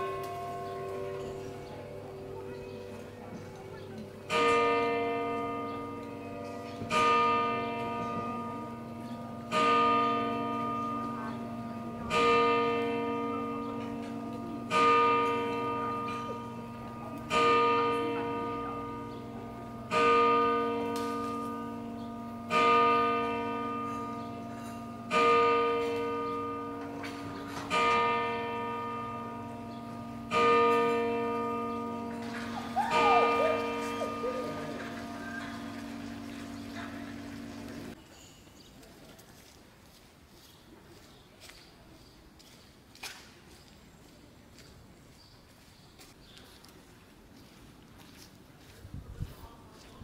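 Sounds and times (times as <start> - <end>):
large church bell tolling: 0.0 - 38.0.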